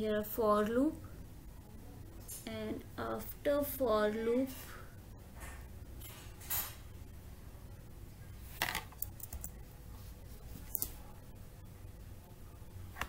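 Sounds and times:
low steady hum: 0.0 - 13.0
computer keys and mouse clicks: 8.9 - 9.6.

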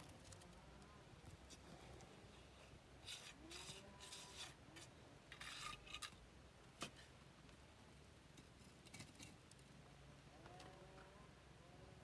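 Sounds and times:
faint rasping scrapes: 1.4 - 6.2.

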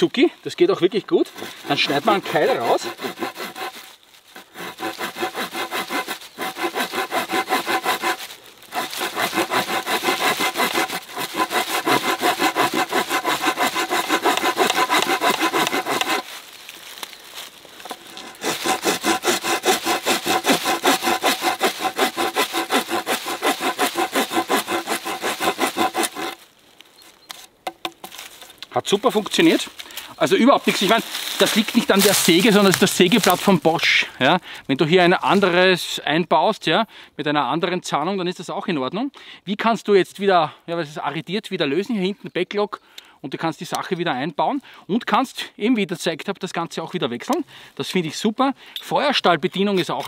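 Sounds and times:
handsaw cutting wooden log: 1.3 - 16.4, 17.8 - 26.4, 30.6 - 33.5.

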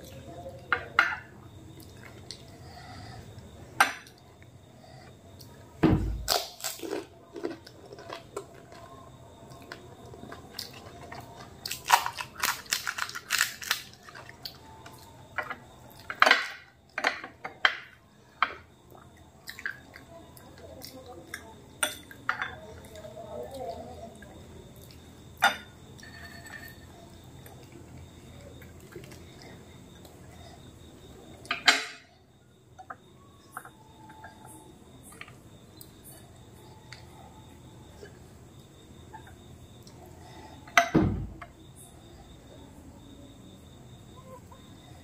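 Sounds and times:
heavy thump: 5.8 - 6.2
crisp shells crunching: 6.3 - 8.4, 11.7 - 14.1.

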